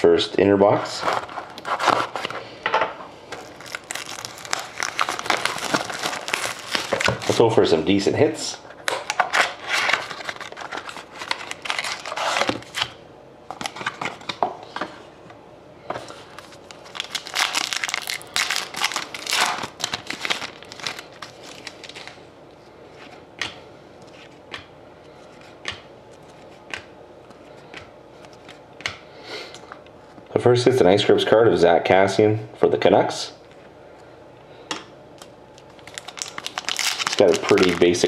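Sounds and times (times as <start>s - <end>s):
plastic wrap crinkling and tearing: 3.3s - 7.6s, 8.9s - 13.0s, 16.3s - 22.2s, 35.6s - 38.0s.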